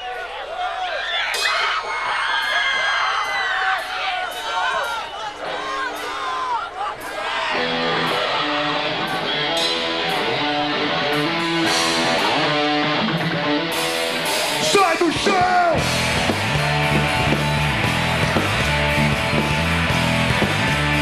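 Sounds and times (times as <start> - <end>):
drums with cymbal hits: 1.3 - 10.3, 13.2 - 21.0
rock band playing live: 7.1 - 21.0
electric guitar: 7.5 - 21.0
loud bass: 15.8 - 21.0.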